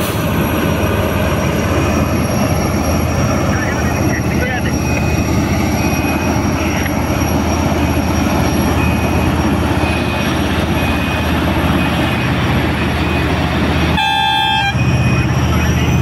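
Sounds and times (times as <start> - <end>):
loud diesel engine running: 0.0 - 16.0
faint high beep: 7.6 - 16.0.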